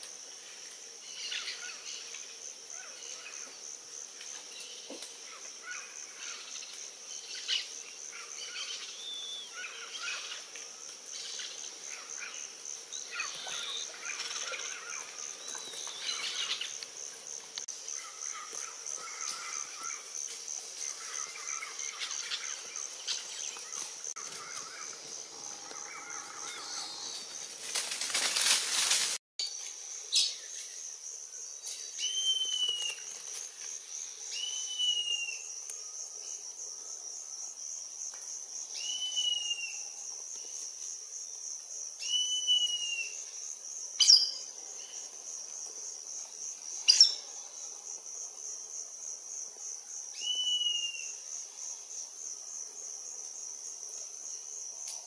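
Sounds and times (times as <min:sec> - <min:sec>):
insects trilling: 0:00.0 - 0:55.0
rustling: 0:27.1 - 0:29.2.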